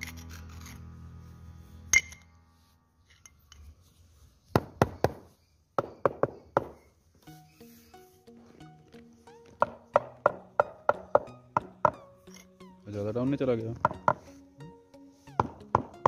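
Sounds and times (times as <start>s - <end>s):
sharp clink: 1.9s - 2.3s
rubber mallet tapping stone: 4.6s - 6.8s, 9.6s - 12.0s, 13.8s - 14.2s, 15.4s - 16.0s.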